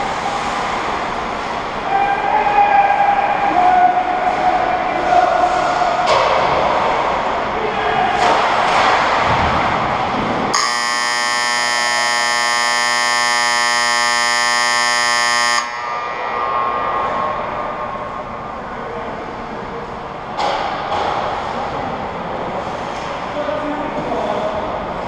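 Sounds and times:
ice rink noise: 0.0 - 25.0
buzzing game horn: 10.5 - 15.9.

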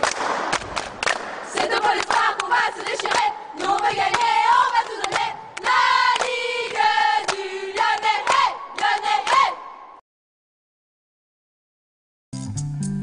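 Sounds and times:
sharp claps: 0.0 - 9.6
young voices chanting: 1.5 - 9.8.

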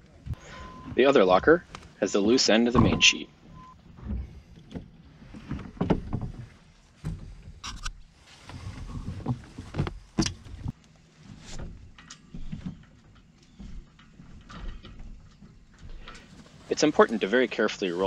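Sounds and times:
knocks and clicks against hull: 3.9 - 7.9, 8.5 - 10.8.

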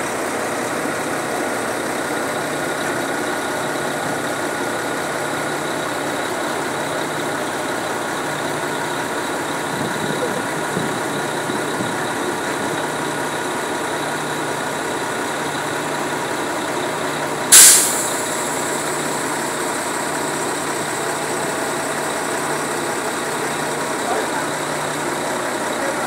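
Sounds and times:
diesel engine running: 0.0 - 26.0
short loud hiss: 17.5 - 18.5.

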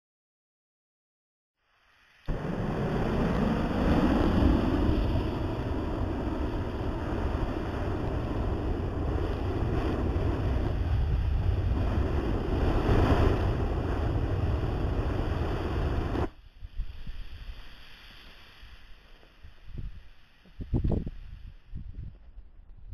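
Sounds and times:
flamethrower roaring: 2.3 - 16.3.

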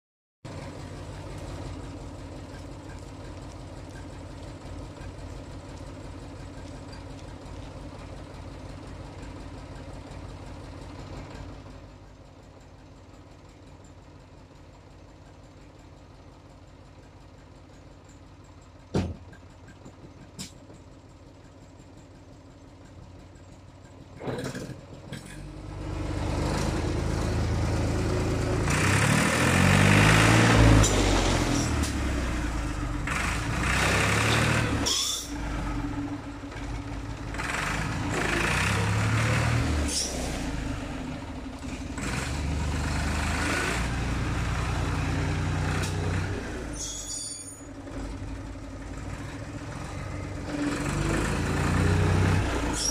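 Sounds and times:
tractor diesel engine: 0.4 - 52.9
knock: 18.9 - 19.3
brief high squeal: 34.8 - 35.4, 46.7 - 47.8, 52.7 - 52.9.

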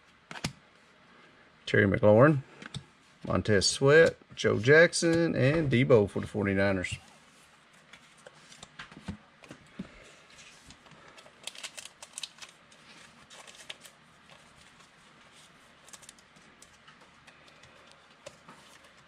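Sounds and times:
trading cards clicking and rustling: 10.6 - 15.0, 15.8 - 19.0.

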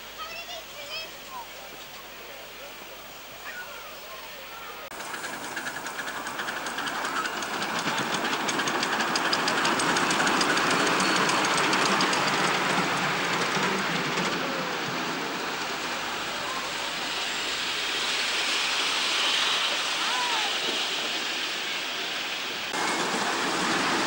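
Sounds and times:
steady noisy rush: 4.4 - 24.0
steam locomotive chuffing: 4.7 - 24.0.

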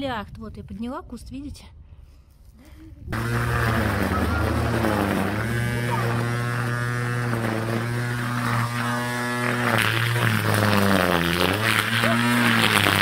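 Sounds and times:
electric grass trimmer buzzing: 3.1 - 13.0.

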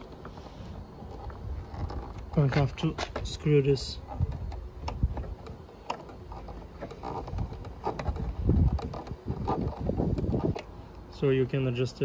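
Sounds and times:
screwdriver clicks and scrapes: 0.0 - 10.7
wind rumble on microphone: 0.9 - 5.5, 7.0 - 10.7.

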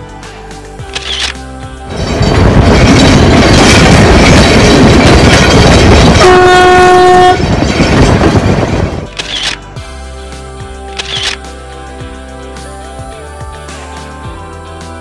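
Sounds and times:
train wheels rushing: 1.9 - 9.1
train horn blast: 6.0 - 7.6.

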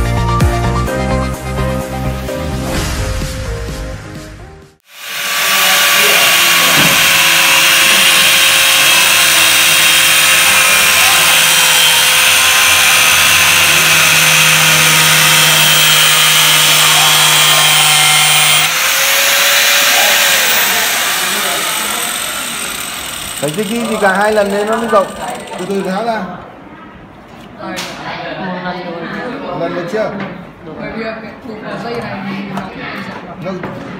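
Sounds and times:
angle grinder cutting plastic pipe: 4.8 - 26.0.

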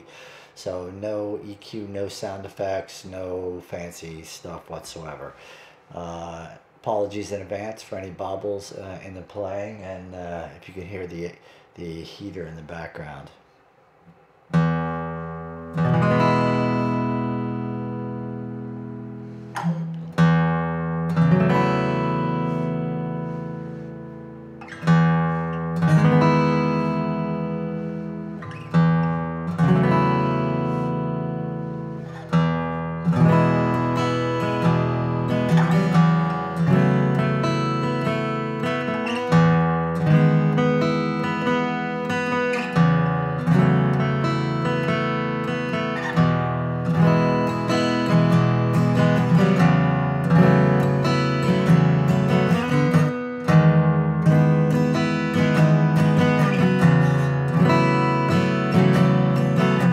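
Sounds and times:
acoustic guitar chords: 13.5 - 59.9.

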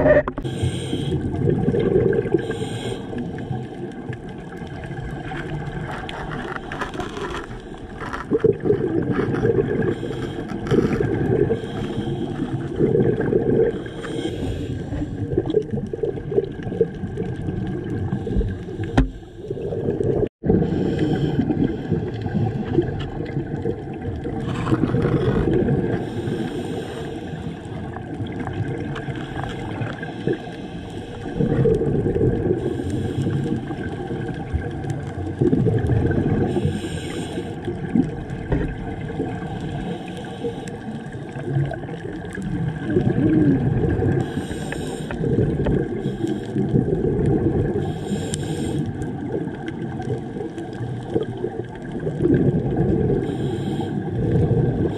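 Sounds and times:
gurgling exhaled bubbles: 0.0 - 54.9
regulator breathing hisses: 0.4 - 1.2, 2.4 - 3.2, 13.8 - 15.0, 26.0 - 27.7, 32.6 - 33.7, 36.5 - 37.6, 44.2 - 45.2, 47.8 - 49.0, 53.2 - 54.1.

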